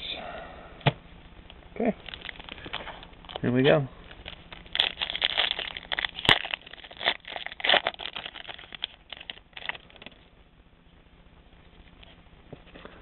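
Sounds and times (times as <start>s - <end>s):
foil wrapper crinkling and tearing: 2.0s - 10.2s.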